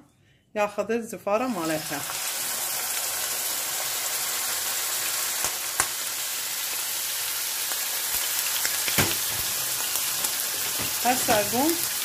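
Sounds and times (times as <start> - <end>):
chicken livers sizzling in hot oil: 1.5 - 12.0.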